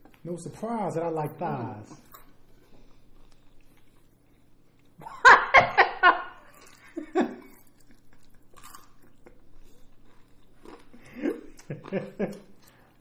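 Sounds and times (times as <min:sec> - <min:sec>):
faint chewing: 0:00.0 - 0:00.6, 0:01.2 - 0:05.0, 0:06.4 - 0:13.0
person laughing: 0:05.0 - 0:07.5, 0:11.0 - 0:12.5.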